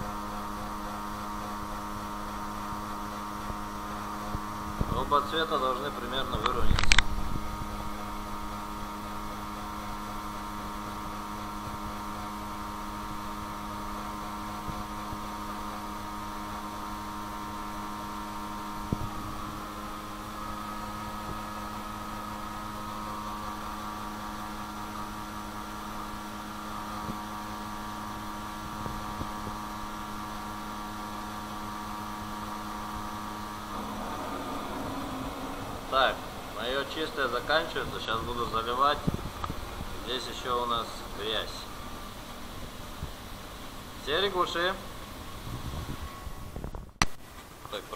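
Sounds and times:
machine hum: 0.0 - 46.5
car engine idling: 31.6 - 39.4.

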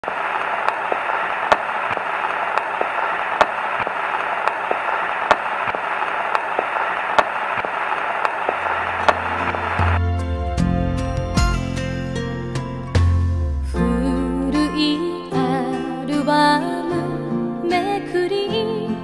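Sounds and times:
vinyl record crackle: 0.0 - 10.4.

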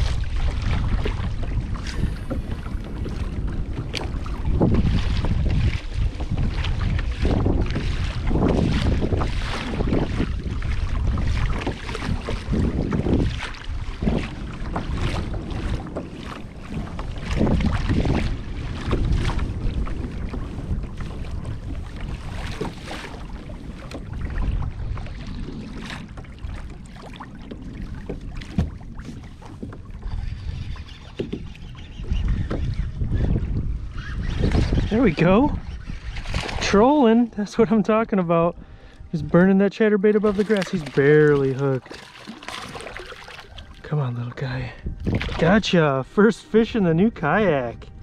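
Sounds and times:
water splashing along hull: 0.0 - 48.0
wind buffeting microphone: 0.0 - 48.0.

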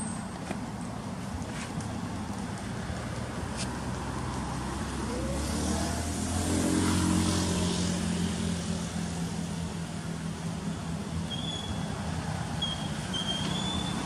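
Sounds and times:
passing vehicle engine: 2.0 - 14.0.

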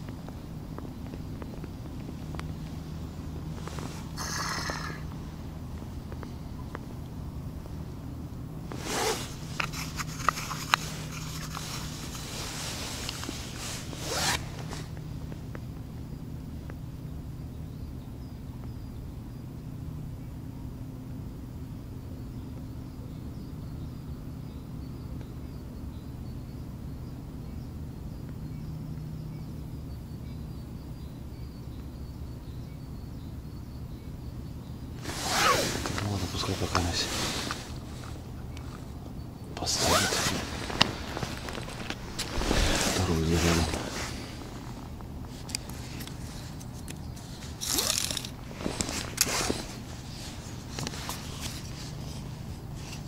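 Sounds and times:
steady low rumble: 0.0 - 17.9
short zip-like rasps: 3.6 - 5.2, 8.7 - 15.0, 35.0 - 38.9, 39.6 - 53.0.

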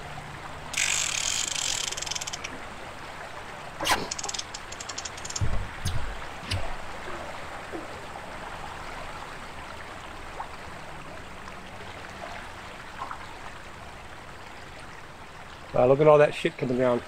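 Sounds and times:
river water rushing: 0.0 - 10.2
dull knock: 5.4 - 6.7.

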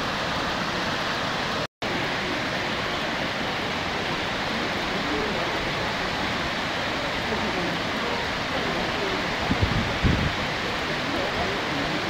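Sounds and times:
water crashing from dam: 0.0 - 12.0.

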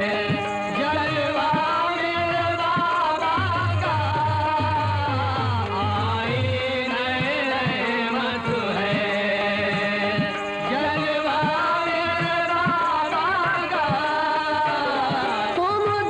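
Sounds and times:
person singing long lines: 0.0 - 16.0.

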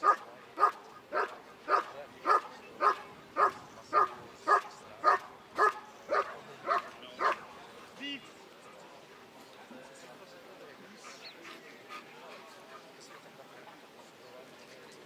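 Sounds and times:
dog barking: 0.0 - 7.4.

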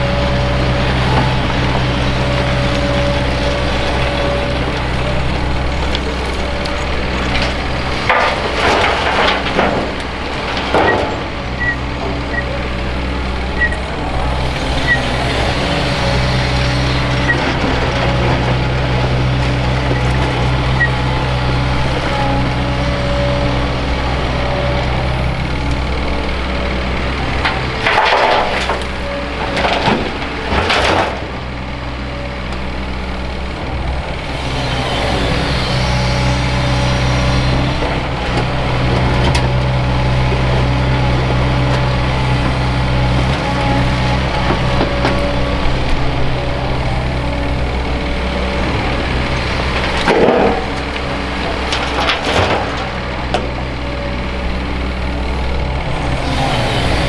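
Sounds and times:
excavator diesel engine droning: 0.0 - 57.0
dirt and rocks clattering into truck: 5.9 - 12.2, 27.4 - 31.5, 49.6 - 53.6.

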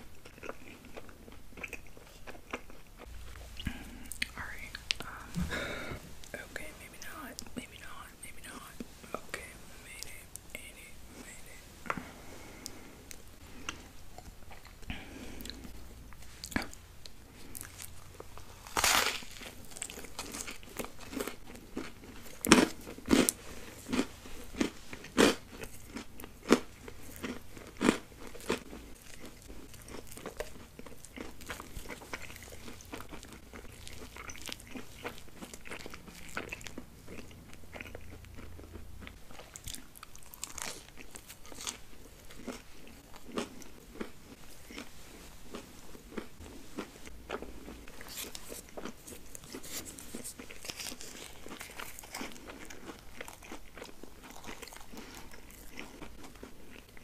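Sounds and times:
person chewing: 0.0 - 57.0
crunchy biting: 17.4 - 44.9, 45.5 - 57.0.

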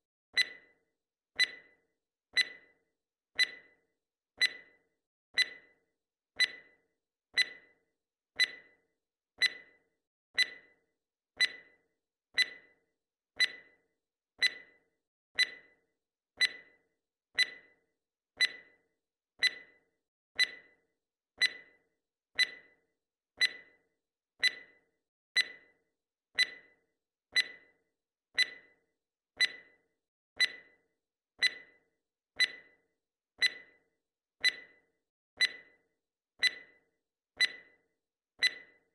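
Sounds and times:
timer ticking: 0.4 - 0.8, 1.4 - 1.8, 2.4 - 2.8, 3.4 - 3.8, 4.4 - 5.8, 6.4 - 6.8, 7.4 - 7.8, 8.4 - 8.8, 9.4 - 10.8, 11.4 - 12.8, 13.4 - 13.8, 14.4 - 14.8, 15.4 - 15.8, 16.4 - 17.8, 18.4 - 20.8, 21.4 - 21.8, 22.4 - 22.8, 23.4 - 23.8, 24.4 - 25.8, 26.4 - 27.8, 28.4 - 29.8, 30.4 - 30.8, 31.4 - 35.8, 36.4 - 38.9.

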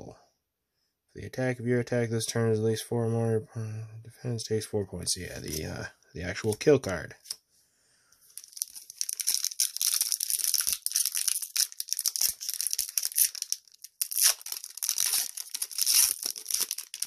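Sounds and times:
wrapper tearing and crinkling: 8.3 - 17.0.

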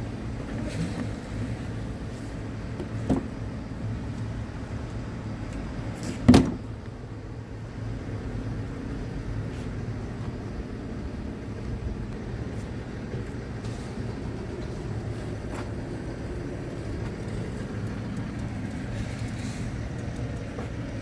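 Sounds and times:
low vehicle rumble: 0.0 - 21.0
loud thump: 6.2 - 6.6.

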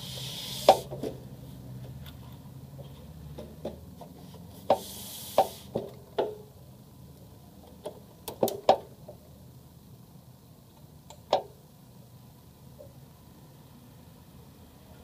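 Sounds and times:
brief hiss: 0.0 - 1.0, 4.6 - 5.8.

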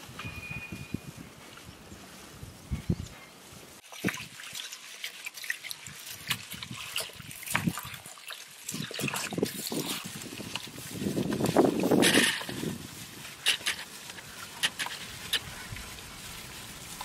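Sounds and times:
hand squelching chicken marinade: 3.8 - 17.0.

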